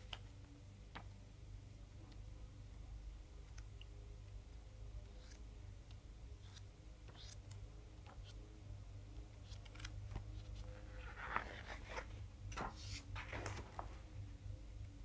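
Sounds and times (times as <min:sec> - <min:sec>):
low room hum: 0:00.0 - 0:15.0
magazine pages turning: 0:09.4 - 0:14.1.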